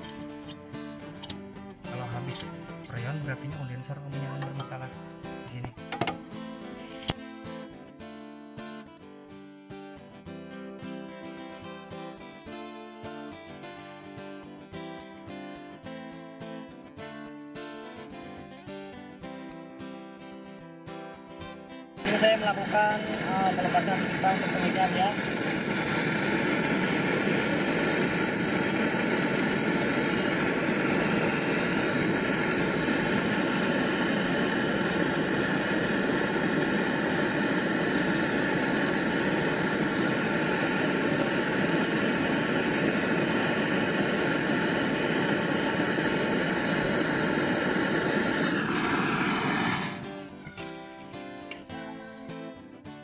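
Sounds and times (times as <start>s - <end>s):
butane torch hissing: 0.0s - 3.3s, 4.4s - 7.2s, 22.0s - 50.8s.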